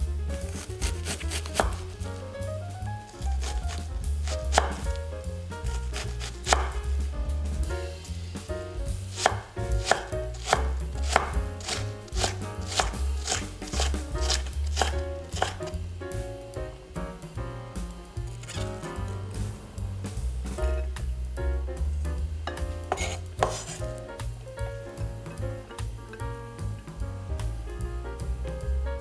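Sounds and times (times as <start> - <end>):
knife chopping on cutting board: 0.4 - 2.0, 3.2 - 5.0, 5.7 - 6.8, 9.1 - 15.8, 22.9 - 23.9.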